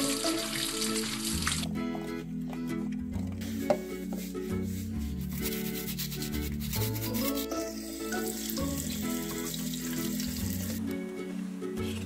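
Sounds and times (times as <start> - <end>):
tap water running over hands: 0.0 - 1.7, 8.2 - 10.8
background music: 0.0 - 12.0
brush scrubbing orange peel: 3.5 - 10.8.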